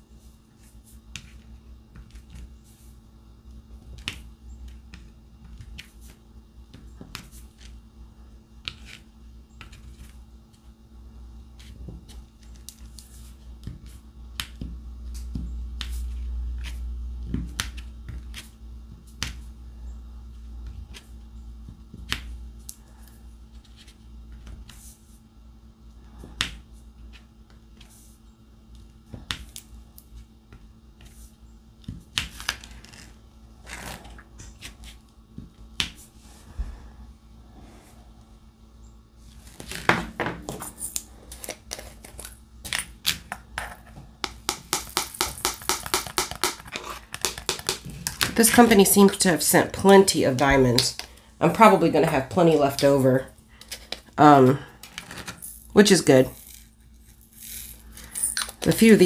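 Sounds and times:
pen clicking and tapping: 44.2s - 47.9s.

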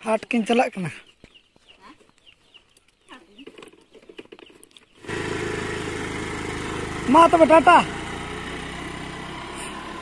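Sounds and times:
birds chirping: 0.0s - 10.0s
scooter engine starting and running: 3.4s - 10.0s.

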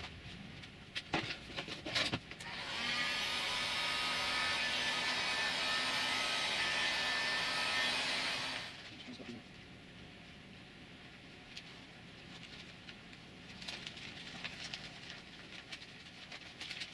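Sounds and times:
heat gun blowing: 2.4s - 8.8s
hands rubbing vinyl film: 11.5s - 16.9s.

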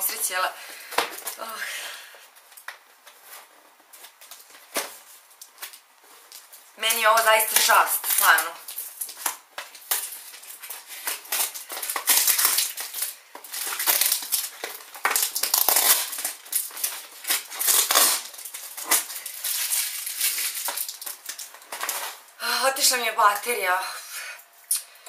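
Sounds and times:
paper crinkling and rustling: 2.3s - 22.3s.

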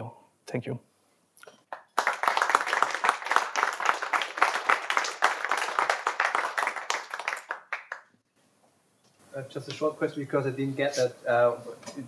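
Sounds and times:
audience applauding: 1.6s - 8.1s.

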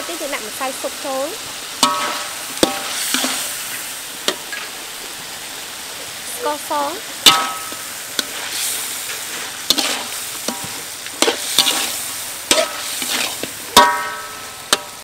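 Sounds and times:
meat sizzling in a wok: 0.0s - 15.0s
spatula clanking on a wok: 1.8s - 3.5s, 7.2s - 8.4s, 9.1s - 15.0s
metal spatula scraping a wok: 1.8s - 3.9s, 7.2s - 15.0s.

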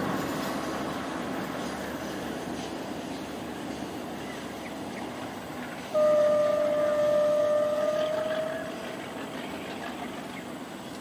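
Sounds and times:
locomotive horn blast: 5.9s - 9.2s.

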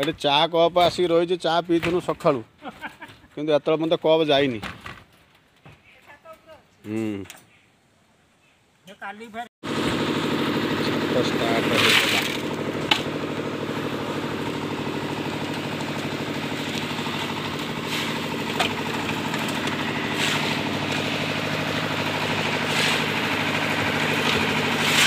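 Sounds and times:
concrete mixer engine running: 9.6s - 25.0s.

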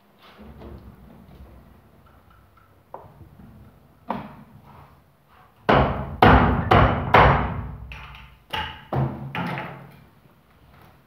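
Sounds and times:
hard knocks with low hum: 5.7s - 8.0s.

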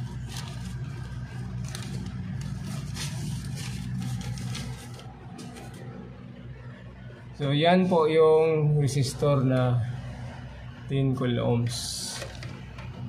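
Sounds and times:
paper and conduit rustling: 0.0s - 6.1s, 12.1s - 12.7s
low hum: 0.0s - 13.0s.

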